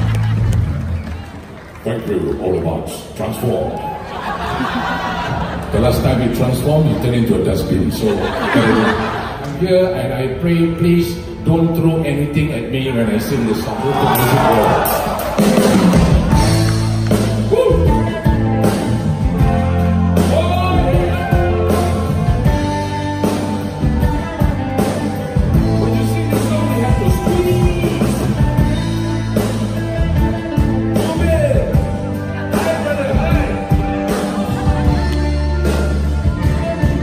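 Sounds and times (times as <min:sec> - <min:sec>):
live band playing: 0:04.6 - 0:37.0.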